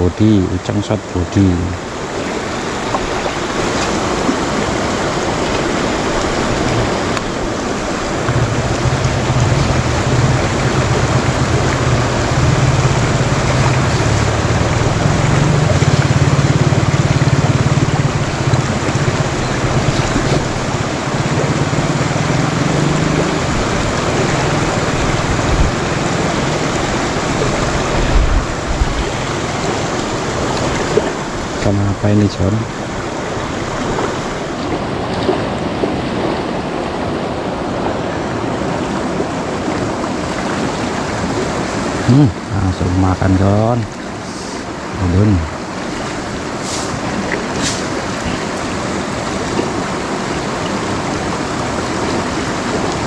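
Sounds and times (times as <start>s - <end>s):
river rushing over rocks: 0.0s - 53.0s
deep rumble: 7.9s - 29.3s.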